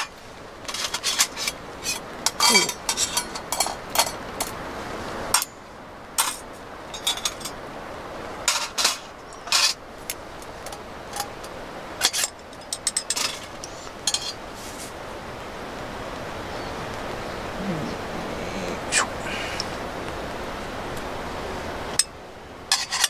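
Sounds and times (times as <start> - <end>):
steady background hiss: 0.0 - 23.0
metal tongs clinking: 7.0 - 7.6, 12.0 - 14.4.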